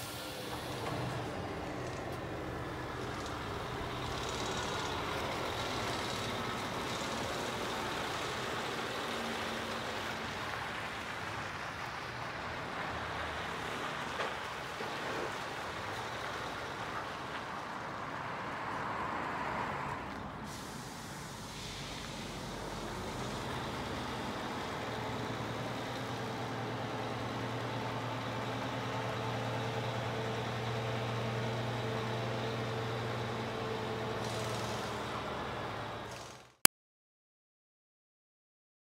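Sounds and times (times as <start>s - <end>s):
hiss: 0.0s - 2.0s, 20.4s - 24.3s, 34.2s - 35.2s
truck diesel engine running: 0.0s - 18.0s, 20.5s - 36.5s.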